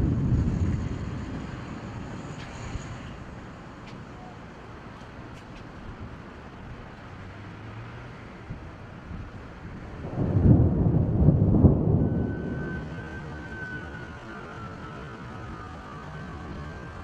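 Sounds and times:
thunder rumbling: 0:00.0 - 0:03.4, 0:09.2 - 0:17.0.

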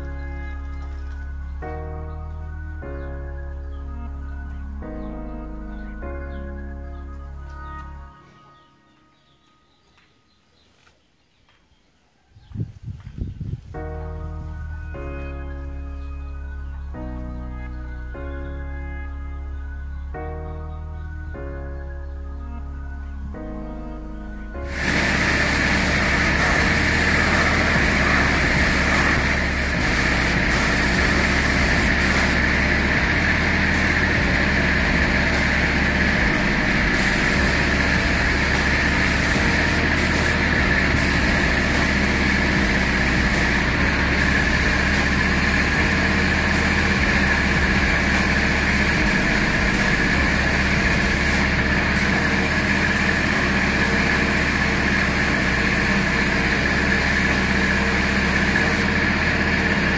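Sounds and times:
air compressor droning: 0:24.6 - 0:59.9
spray gun air hissing: 0:24.7 - 0:58.9.

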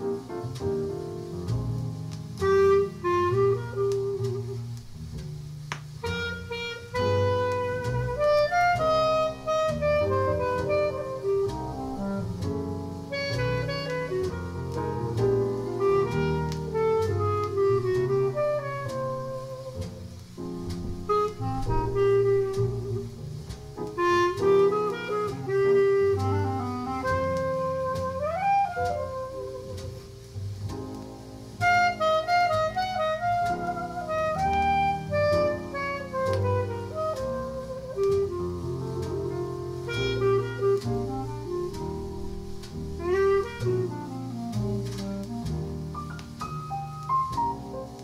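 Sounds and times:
bass notes: 0:00.0 - 0:48.0
reed instrument jazz melody: 0:00.0 - 0:48.0.

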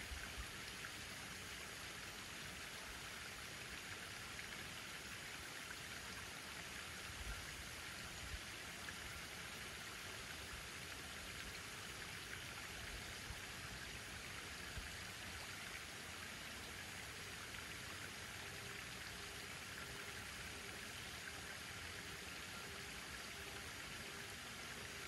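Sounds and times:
hiss of running water: 0:00.0 - 0:25.0.

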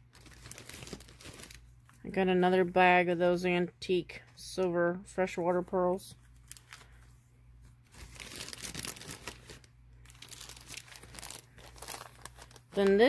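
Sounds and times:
plastic bag crinkling: 0:00.0 - 0:02.0, 0:06.3 - 0:07.0, 0:07.8 - 0:13.0.

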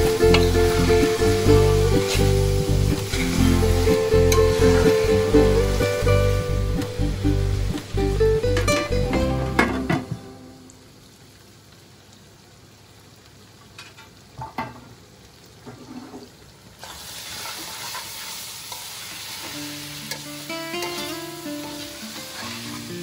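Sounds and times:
meat sizzling in a pan: 0:00.0 - 0:07.9, 0:13.8 - 0:23.0
metal spoon scraping a pan: 0:20.1 - 0:22.9.

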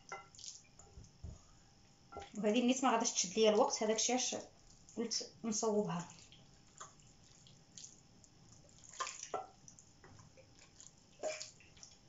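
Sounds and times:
hands squishing marinade into chicken: 0:00.2 - 0:00.7, 0:06.1 - 0:12.0.

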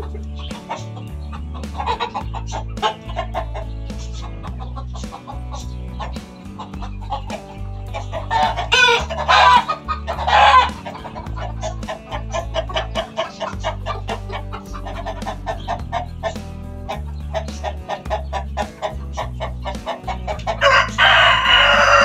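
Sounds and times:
background music with steady beat: 0:00.0 - 0:22.0
hens clucking: 0:00.0 - 0:22.0
rooster crowing: 0:20.6 - 0:22.0.

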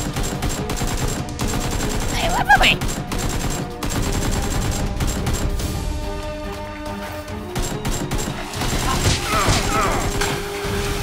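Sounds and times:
rapid automatic gunfire: 0:00.0 - 0:05.7, 0:07.5 - 0:10.2
background music: 0:00.0 - 0:11.0
person yelling: 0:02.2 - 0:02.8.

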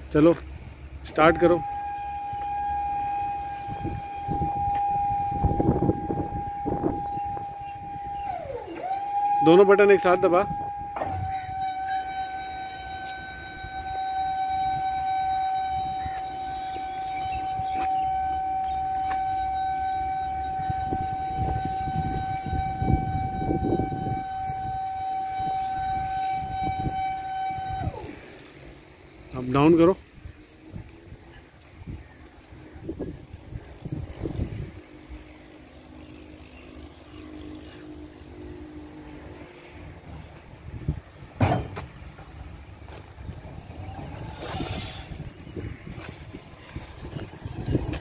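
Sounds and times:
electric motor whine: 0:00.5 - 0:41.0, 0:42.7 - 0:48.0
truck clunks and rattles: 0:41.3 - 0:42.5
low rumble and knocks: 0:41.4 - 0:42.4.

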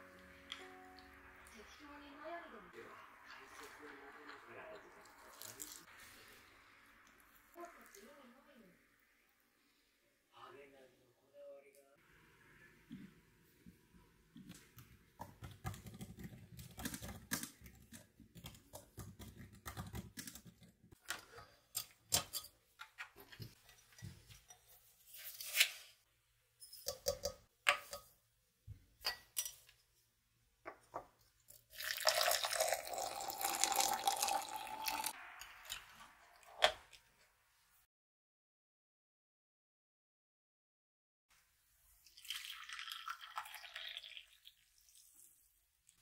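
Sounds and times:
hot water pouring: 0:03.2 - 0:07.6, 0:31.7 - 0:37.0, 0:42.0 - 0:45.5
laptop keyboard typing: 0:15.2 - 0:20.7.

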